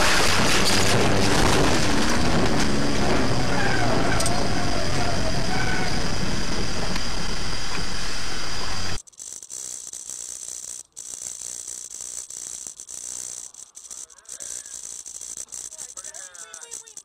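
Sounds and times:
vehicle interior rumble: 0.0 - 9.0
crackles and small rattles: 0.0 - 17.0
hissy dash camera driving noise: 0.0 - 17.0.

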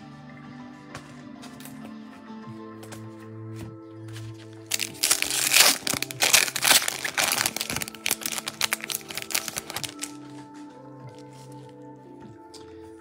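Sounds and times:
background music: 0.0 - 13.0
foil wrapper crinkling and tearing: 4.7 - 10.3.

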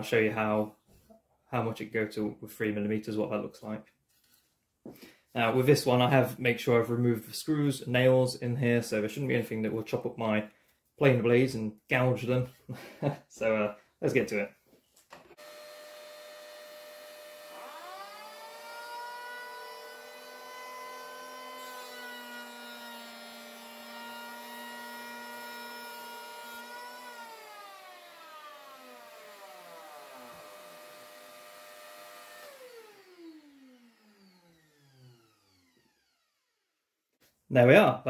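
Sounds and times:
electric planer planing wood: 15.3 - 36.6
dust extractor whine: 15.4 - 36.3.

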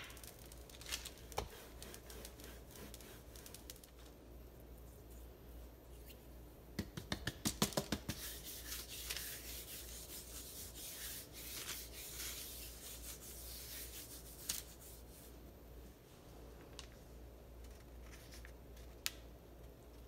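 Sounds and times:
palm rubbing dough and paper: 0.0 - 4.0, 7.7 - 15.5.

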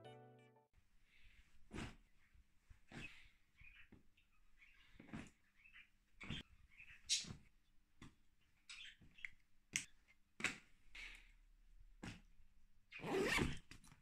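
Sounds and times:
zipper pulled shut: 13.0 - 13.7.

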